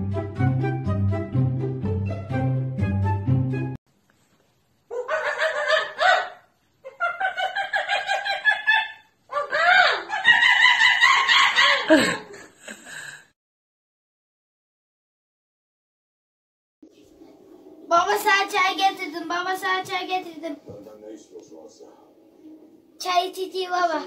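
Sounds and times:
high-pitched cackling: 4.9s - 12.0s.

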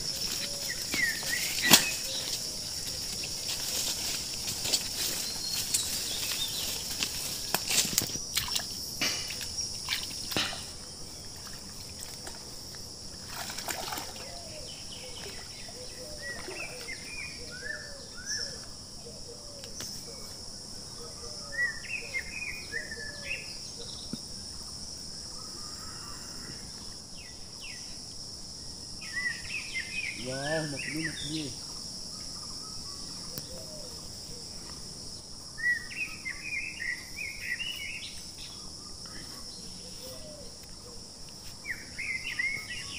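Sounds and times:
birds chirping: 0.0s - 12.0s, 13.9s - 28.0s, 28.9s - 41.0s, 41.6s - 42.9s
insects droning: 0.0s - 42.9s
water sloshing from wading: 7.9s - 14.4s.

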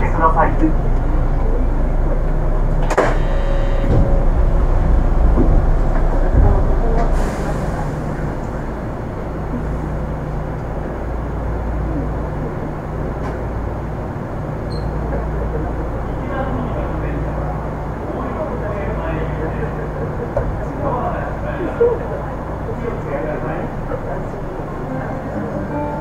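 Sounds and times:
low motor hum: 0.0s - 17.6s
train running rumble: 0.0s - 26.0s.

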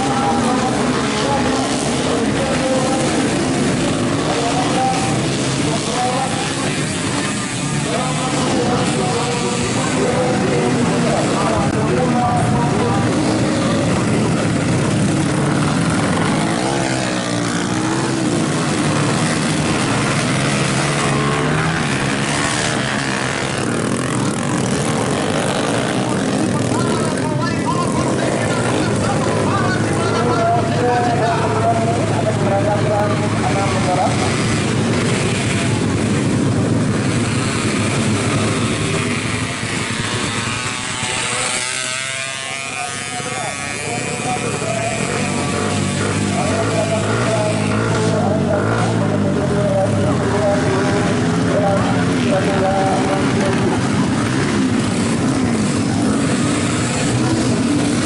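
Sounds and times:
motorcycle engines revving: 0.0s - 58.0s.

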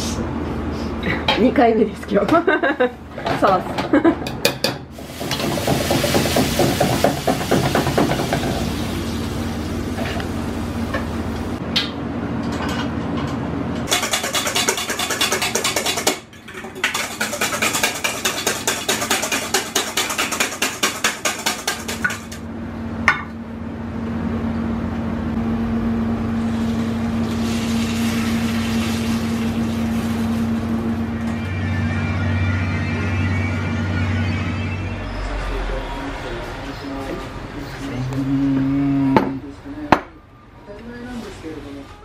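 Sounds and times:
gas burners roaring: 0.0s - 14.1s, 21.6s - 42.0s
whisk clattering in metal bowl: 13.9s - 22.4s.

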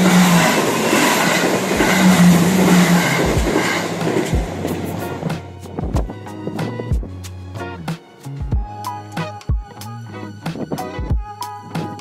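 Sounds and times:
train passing at speed: 0.0s - 6.8s.

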